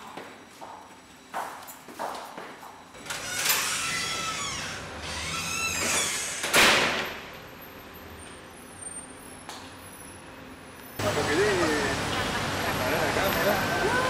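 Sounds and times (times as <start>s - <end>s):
steady background noise: 0.0s - 14.0s
door hinges squealing: 3.0s - 7.1s.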